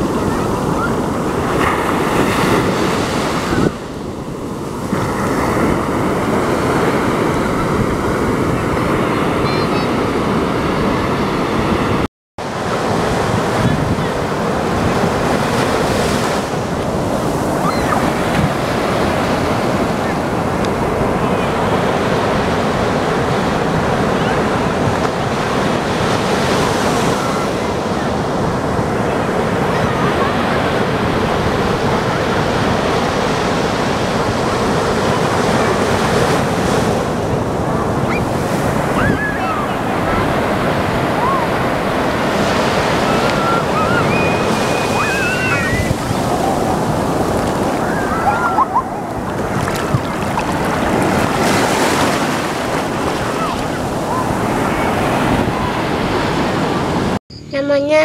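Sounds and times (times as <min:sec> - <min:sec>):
ocean surf breaking on beach: 0:00.0 - 0:57.2
wind buffeting microphone: 0:00.0 - 0:57.2.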